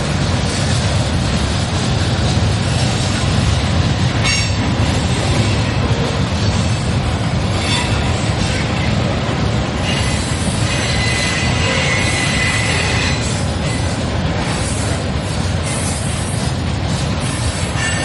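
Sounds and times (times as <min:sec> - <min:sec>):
train wheels rumbling on rail: 0:00.0 - 0:18.0
high-pitched wheel squeals: 0:09.8 - 0:13.3.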